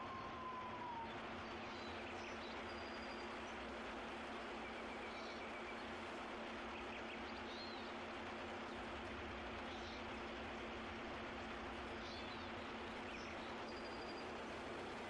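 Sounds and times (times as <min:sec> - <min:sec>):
whistle-like tone dropping in pitch: 0:00.0 - 0:01.2
faint bird chirps: 0:00.0 - 0:03.5.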